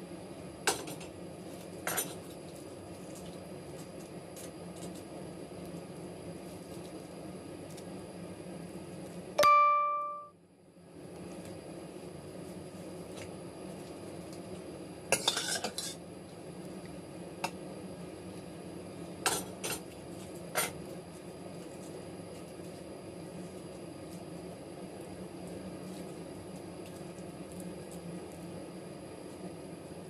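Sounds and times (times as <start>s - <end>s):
utensils clattering on pot: 15.2s - 16.0s.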